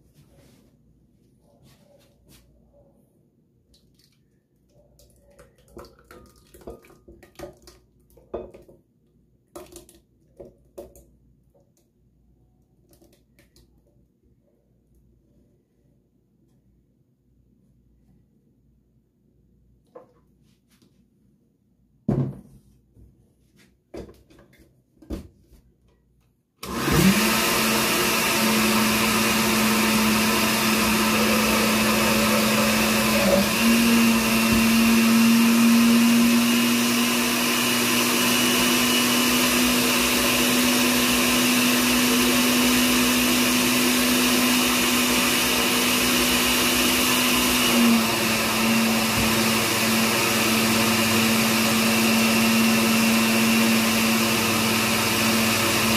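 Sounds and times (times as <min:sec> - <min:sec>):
blender motor running: 0:26.6 - 0:55.9.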